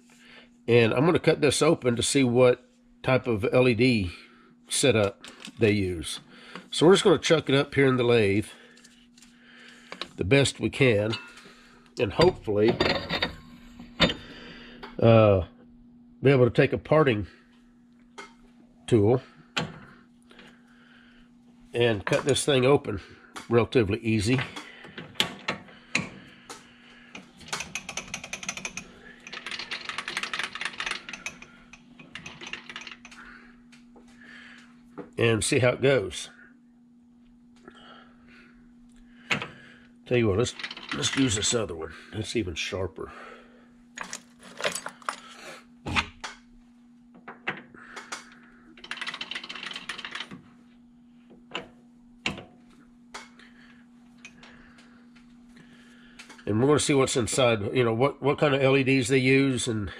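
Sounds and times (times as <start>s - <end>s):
steady machine hum: 0.0s - 59.9s.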